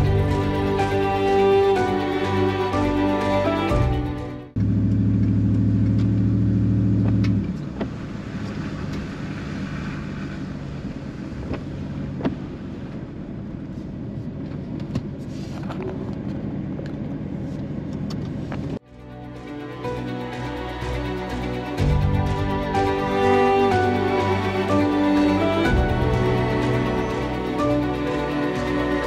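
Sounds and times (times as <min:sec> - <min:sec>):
tyres rumbling on gravel road: 0:04.6 - 0:18.8
loud engine drone: 0:20.4 - 0:29.0.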